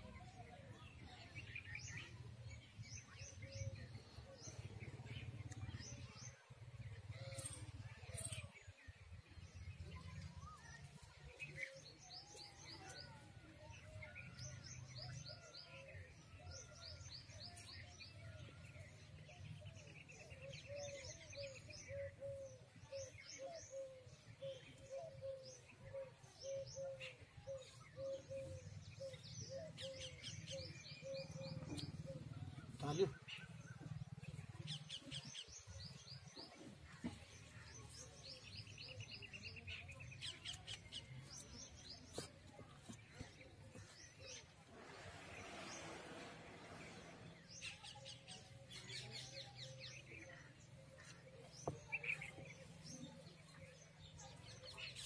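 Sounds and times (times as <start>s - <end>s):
small birds chirping: 16.4s - 55.0s.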